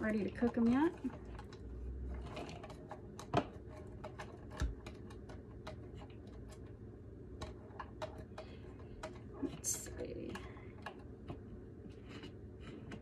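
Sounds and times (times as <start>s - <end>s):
utensils clicking and tapping: 0.0s - 6.7s.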